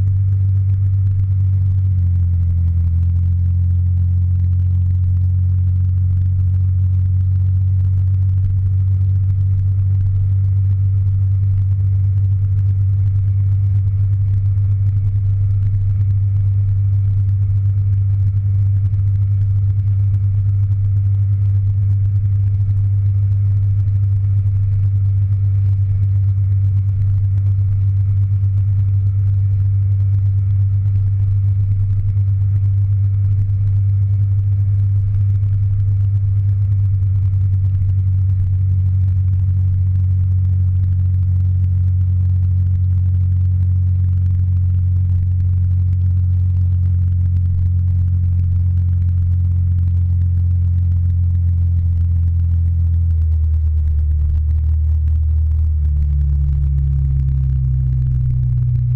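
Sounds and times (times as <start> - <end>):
muffled scooter engine rumble: 0.0 - 58.9.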